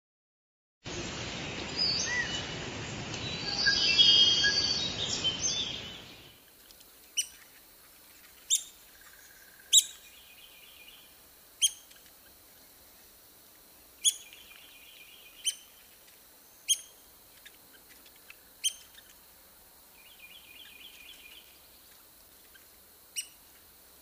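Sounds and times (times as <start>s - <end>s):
woodpecker calls: 7.0s - 12.4s, 14.0s - 19.2s, 20.0s - 23.6s
bird whistles: 9.7s - 10.0s.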